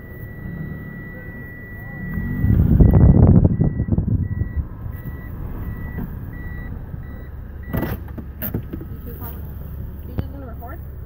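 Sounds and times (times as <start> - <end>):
electronic warning beeper: 0.0 - 7.9
loud low rumble: 0.0 - 10.0.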